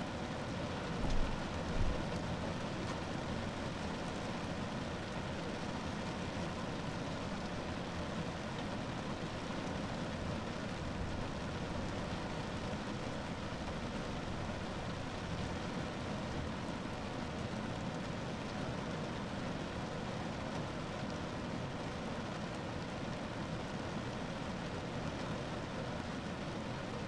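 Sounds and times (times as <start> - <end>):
rain on a car roof: 0.0 - 27.0.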